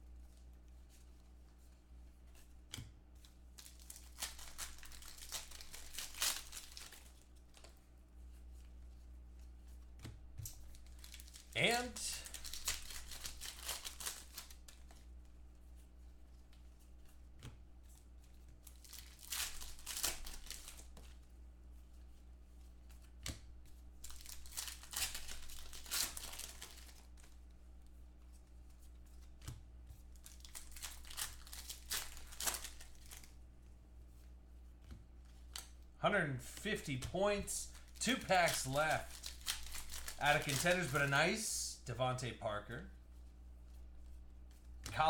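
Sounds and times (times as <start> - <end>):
card pack wrappers tearing: 3.6 - 7.1, 10.7 - 14.7, 18.8 - 20.8, 24.0 - 27.0, 30.2 - 33.3, 37.7 - 41.2.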